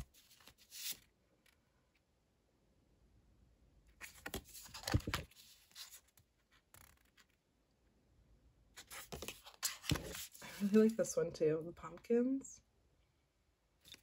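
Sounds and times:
cards sliding and rustling: 0:00.0 - 0:01.6, 0:04.0 - 0:07.4, 0:08.8 - 0:11.0.

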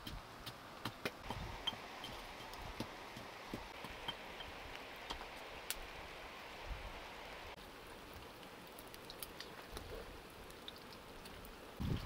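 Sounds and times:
fire crackles and pops: 0:00.0 - 0:12.0
eggs sizzling: 0:07.2 - 0:12.0.

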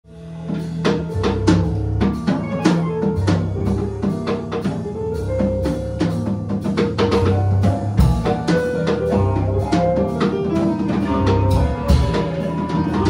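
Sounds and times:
drum kit beat: 0:00.1 - 0:13.0
held keyboard chords: 0:00.1 - 0:13.0
electric guitar: 0:08.8 - 0:13.0.

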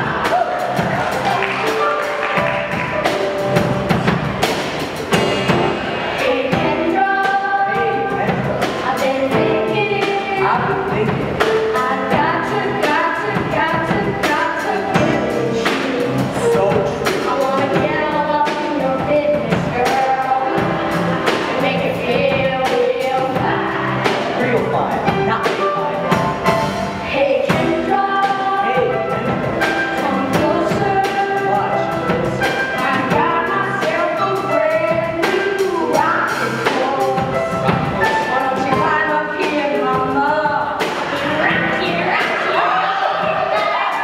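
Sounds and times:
band accompaniment with drum beat: 0:00.0 - 0:44.0
boys singing: 0:32.7 - 0:44.0.

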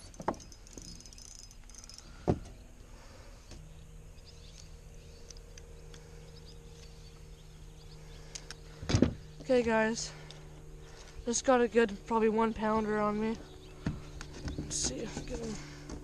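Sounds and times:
high insect-like chirping: 0:00.0 - 0:11.7
low steady hum: 0:00.0 - 0:16.0.

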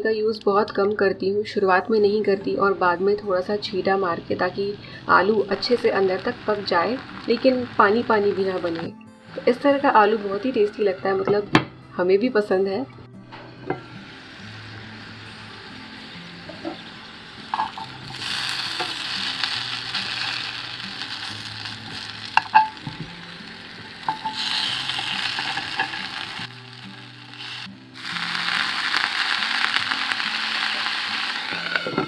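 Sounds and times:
potatoes sizzling in oil: 0:04.4 - 0:11.0, 0:13.7 - 0:32.0.

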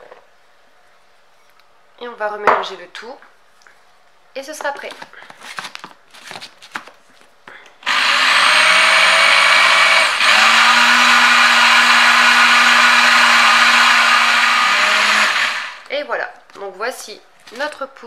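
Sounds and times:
blender motor whirring: 0:07.8 - 0:15.9.

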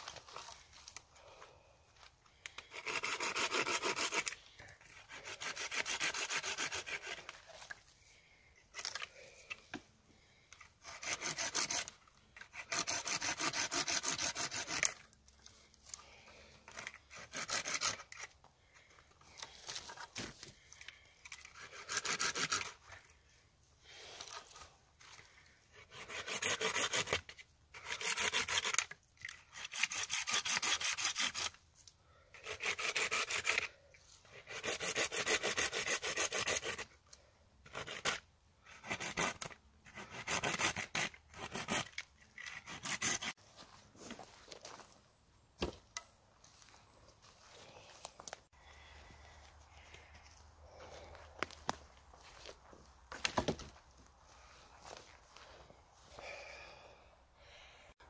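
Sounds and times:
hand saw cutting tree trunk: 0:02.6 - 0:07.6, 0:10.8 - 0:15.1, 0:16.7 - 0:18.4, 0:21.3 - 0:23.0, 0:25.7 - 0:31.6, 0:32.3 - 0:37.0, 0:37.6 - 0:43.4.

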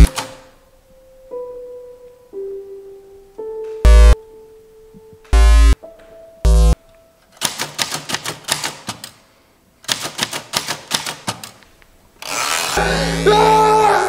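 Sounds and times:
loud buzzing tones: 0:03.9 - 0:04.2, 0:05.4 - 0:05.8, 0:06.5 - 0:06.8, 0:12.7 - 0:13.9
manual typewriter keystrokes: 0:07.4 - 0:09.2, 0:09.9 - 0:11.6.

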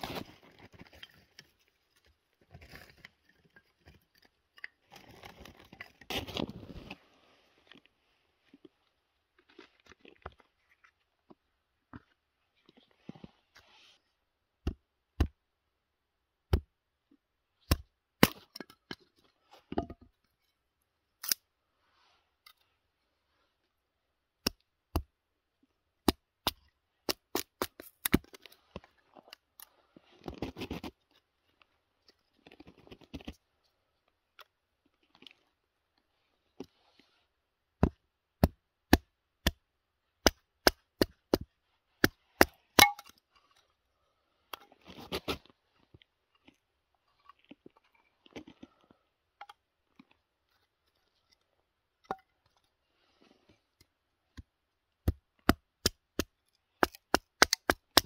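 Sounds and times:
axe chopping into dry wood: 0:40.2 - 0:43.1, 0:55.1 - 0:58.0.

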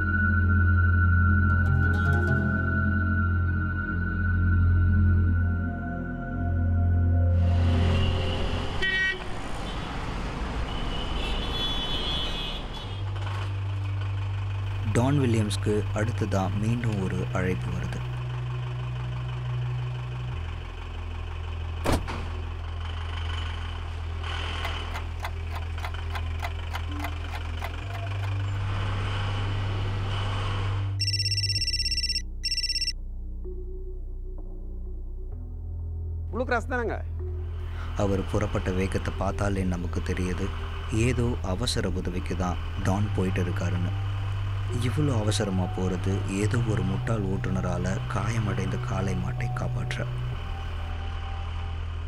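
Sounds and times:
traffic noise: 0:07.4 - 0:32.9, 0:37.5 - 0:52.0
car horn toot: 0:08.8 - 0:09.2
low engine hum: 0:13.0 - 0:36.3, 0:37.1 - 0:52.0
warbling telephone ring: 0:31.0 - 0:32.9.

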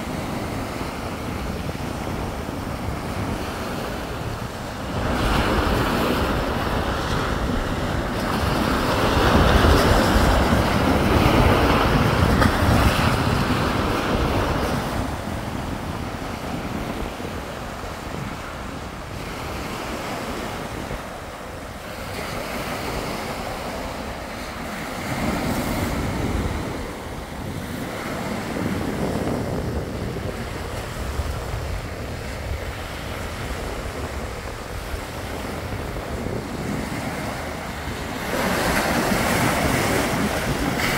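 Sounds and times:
wind buffeting microphone: 0:00.0 - 0:40.9
waves washing over pebbles: 0:33.2 - 0:40.9.

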